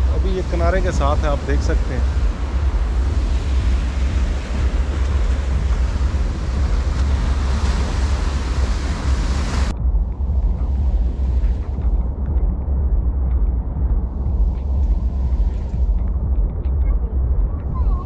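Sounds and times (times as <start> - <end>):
sea waves breaking on shore: 0.0 - 9.7
low rumble: 0.0 - 18.0
wind buffeting microphone: 0.0 - 18.0.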